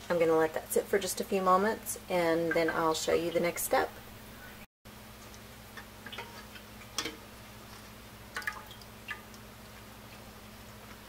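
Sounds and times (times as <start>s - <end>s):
liquid dripping into pan: 5.2s - 7.3s, 8.3s - 9.5s.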